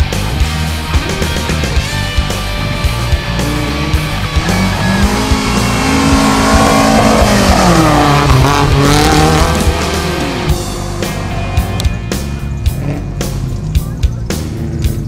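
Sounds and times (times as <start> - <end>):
rally car engine revving past: 3.2 - 11.8.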